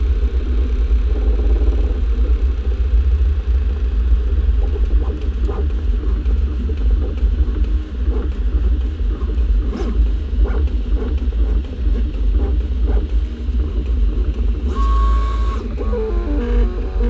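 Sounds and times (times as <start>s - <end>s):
stepper motors whining: 14.3s - 17.0s.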